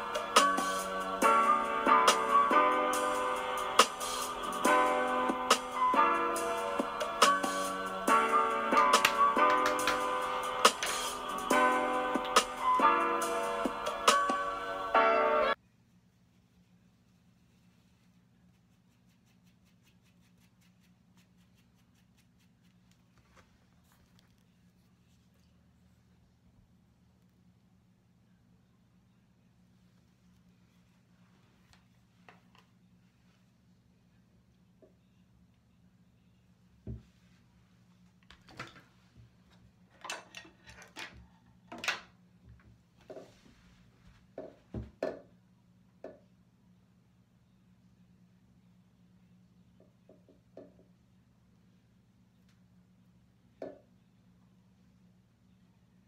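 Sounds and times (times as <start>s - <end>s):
faint steady low hum: 15.5s - 56.0s.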